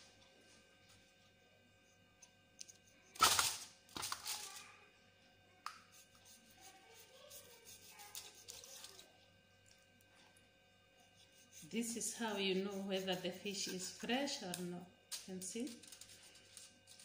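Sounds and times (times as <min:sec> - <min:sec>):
aluminium foil rustling: 0:03.2 - 0:04.7, 0:15.2 - 0:17.0.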